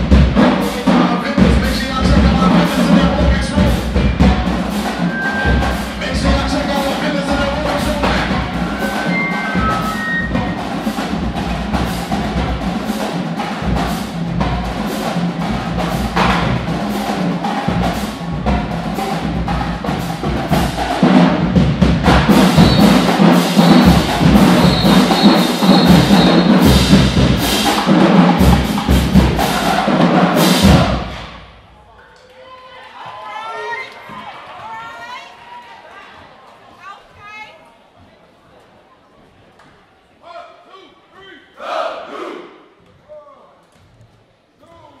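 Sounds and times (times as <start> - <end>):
driving drum beat: 0.0 - 31.7
marching band playing: 0.0 - 31.8.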